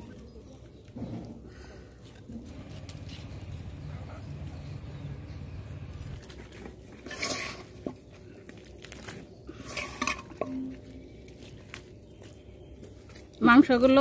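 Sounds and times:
knife and metal utensils scraping: 0:07.0 - 0:07.9, 0:09.6 - 0:10.5.

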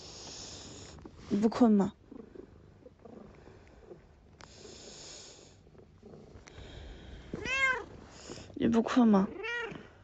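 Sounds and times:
cat breathing faintly: 0:03.2 - 0:05.7, 0:06.4 - 0:08.6
cat meowing: 0:07.4 - 0:07.9.

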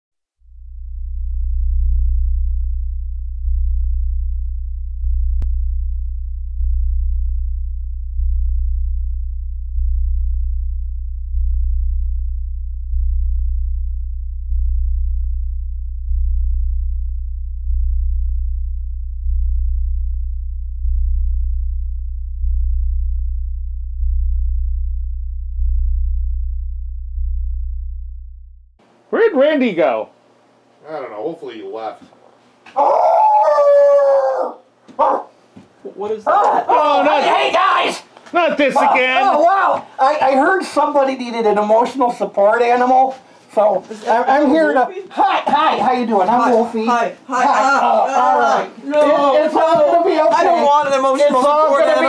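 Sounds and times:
deep synthesizer bass drone: 0:00.4 - 0:28.8.

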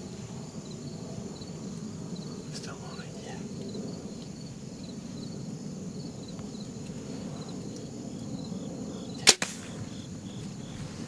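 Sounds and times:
bow string crack: 0:09.2 - 0:10.0.

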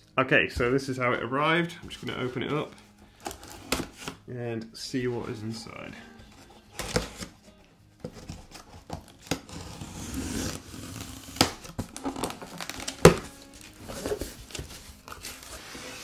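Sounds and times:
cardboard flaps tearing and snapping: 0:08.0 - 0:16.0
knife slitting packing tape: 0:08.1 - 0:13.3.

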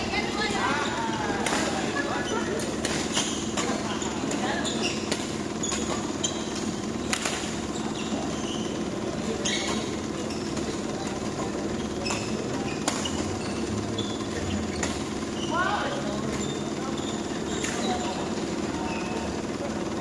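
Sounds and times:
shoes squeaking on court floor: 0:00.0 - 0:20.0
rackets striking shuttlecock: 0:01.4 - 0:02.0, 0:02.6 - 0:04.4, 0:05.0 - 0:07.7, 0:12.1 - 0:13.2.

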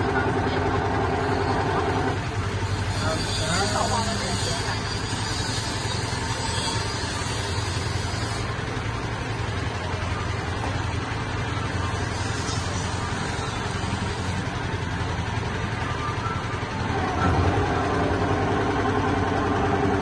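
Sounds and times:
boat engine running: 0:00.0 - 0:20.0.

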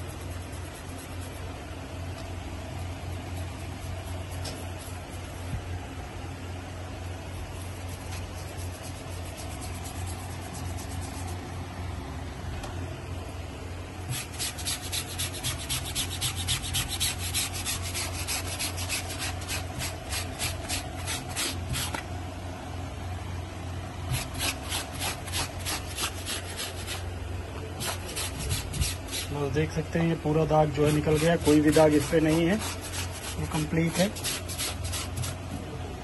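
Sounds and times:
bristle brush scrubbing wet shirt: 0:00.0 - 0:01.6, 0:02.8 - 0:05.5, 0:07.0 - 0:11.4, 0:14.0 - 0:22.0, 0:24.1 - 0:27.0, 0:27.8 - 0:29.4, 0:30.6 - 0:35.4
steady low hum: 0:00.0 - 0:36.0.

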